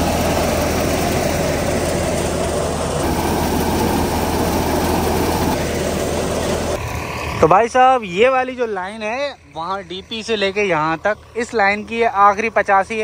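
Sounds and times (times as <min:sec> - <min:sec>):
thresher rushing noise: 0:00.0 - 0:08.0
tractor diesel engine drone: 0:00.0 - 0:13.0.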